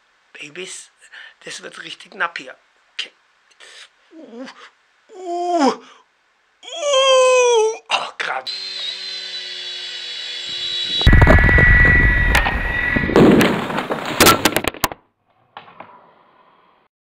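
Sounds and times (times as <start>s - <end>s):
toy helicopter motor whining: 8.5s - 11.1s
rotor blades crashing and clattering: 11.0s - 15.0s.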